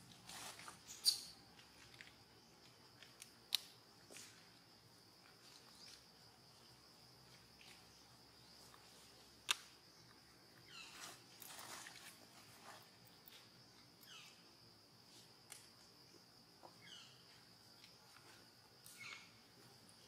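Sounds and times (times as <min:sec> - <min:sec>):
insect buzz: 0:00.0 - 0:20.0
short falling squeaks: 0:00.9 - 0:01.4.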